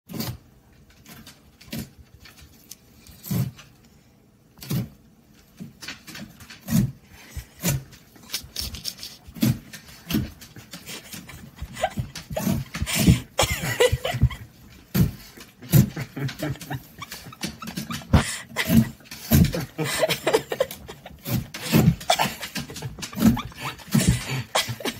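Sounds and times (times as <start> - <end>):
dogs sniffing: 6.6 - 24.9.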